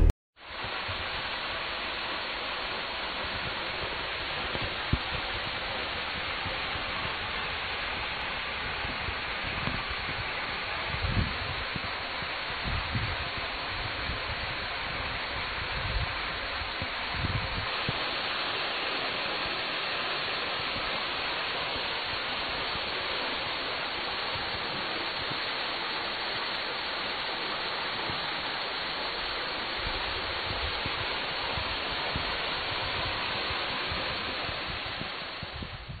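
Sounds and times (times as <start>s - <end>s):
waterfall rushing: 0.0s - 35.6s.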